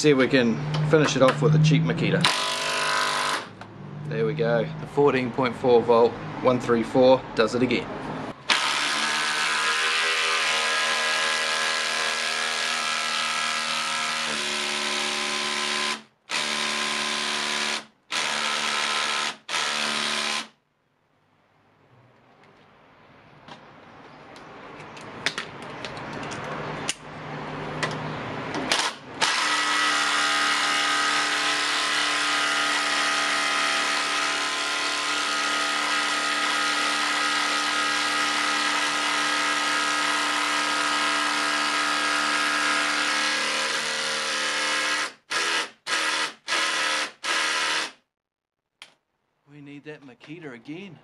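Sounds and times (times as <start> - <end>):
impact driver hammering screw into wood: 2.2 - 3.5, 8.5 - 20.6, 28.6 - 48.0.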